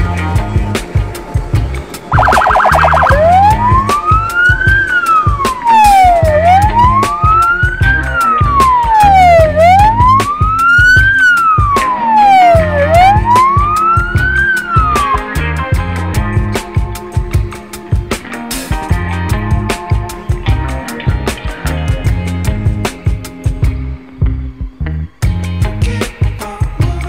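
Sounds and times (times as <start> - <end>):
background music with steady beat: 0.0 - 27.0
electronic siren wailing: 2.1 - 15.8.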